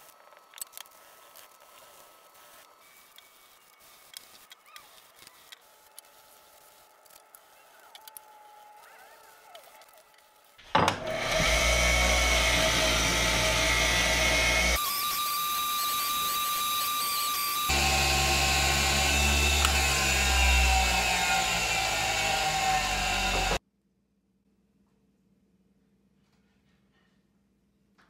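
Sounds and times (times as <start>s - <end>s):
bench grinder motor hum: 10.8s - 23.6s
buffing wheel whine: 11.0s - 23.6s.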